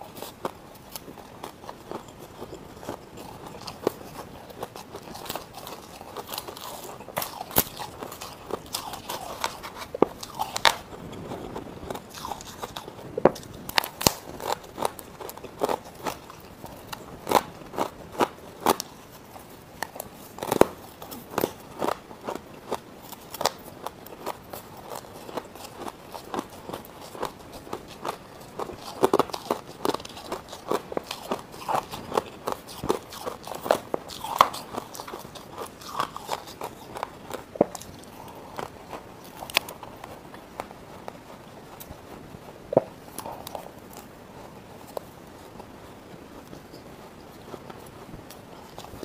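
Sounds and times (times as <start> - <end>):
chewing ice crunches: 0.0 - 49.0.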